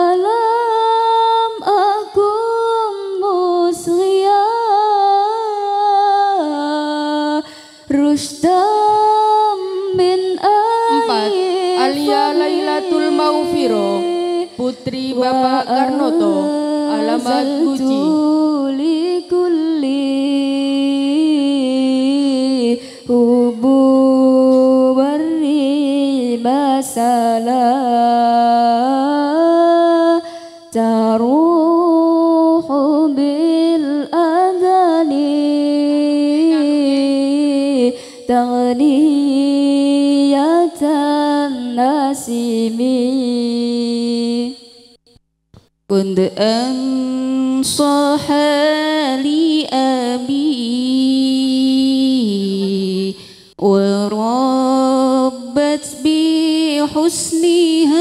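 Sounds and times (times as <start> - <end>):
woman singing solo: 10.4 - 19.1.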